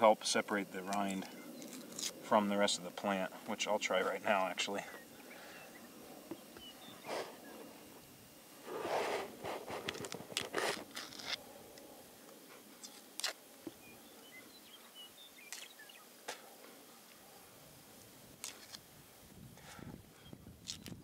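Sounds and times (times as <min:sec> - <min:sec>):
root rind tearing: 0:09.6 - 0:11.4, 0:12.8 - 0:13.4, 0:18.4 - 0:18.8, 0:20.6 - 0:21.0.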